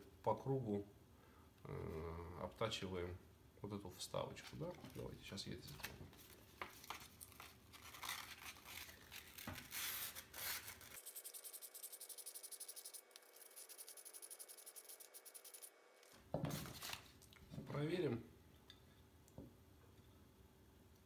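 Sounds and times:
sandpaper rubbing by hand: 9.6 - 15.7.

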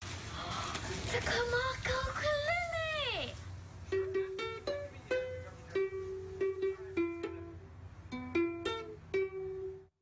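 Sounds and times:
ukulele strummed and plucked: 3.9 - 9.9.

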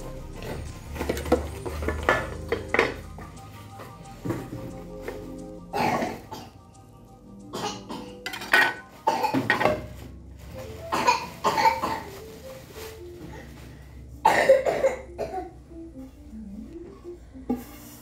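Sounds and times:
faint background music: 0.0 - 18.0
cookware knocking: 8.2 - 8.8
plastic wrap crinkling: 8.4 - 14.2.

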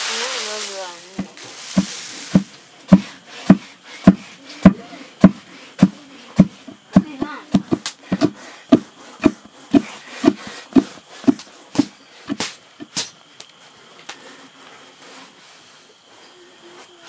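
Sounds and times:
wooden pestle thudding in mortar: 1.2 - 13.0
sharp wooden knocks: 1.8 - 12.5.

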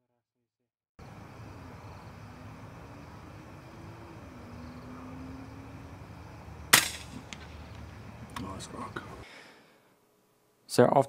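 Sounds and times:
faint low hum: 1.0 - 10.9
background hiss: 1.0 - 11.0
air rifle shot: 6.7 - 7.6.

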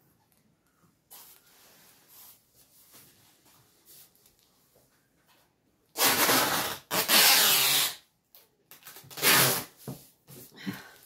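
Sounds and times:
packing tape ripping off roll: 5.9 - 8.1, 8.7 - 9.8.

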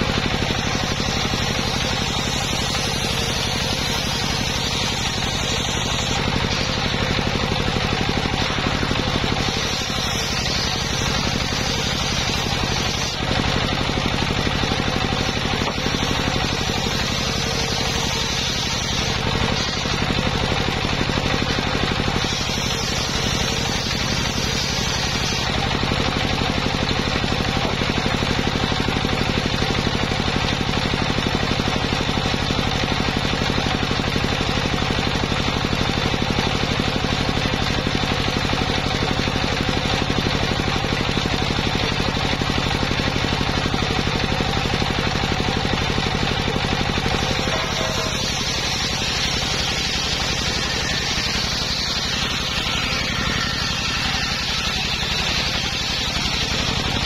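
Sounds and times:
circular saw ripping wood: 0.0 - 29.9, 44.6 - 57.0
engine pulsing: 45.9 - 57.0.

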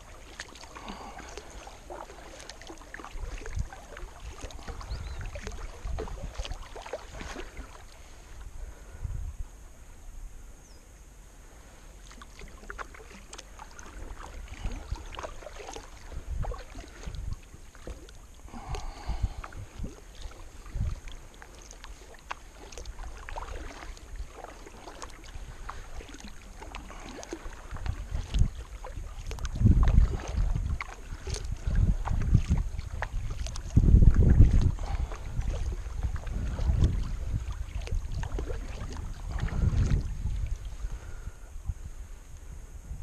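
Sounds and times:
water dripping: 0.0 - 7.9
paddle splashing into water: 0.0 - 8.5, 11.6 - 41.5
low rumbles on microphone: 2.8 - 12.6, 27.6 - 43.0.

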